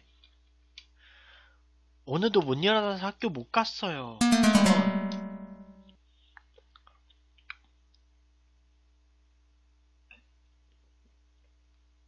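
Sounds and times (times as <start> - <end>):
musical tone: 4.2 - 5.8
faint small clicks and taps: 6.4 - 8.0, 10.1 - 11.8.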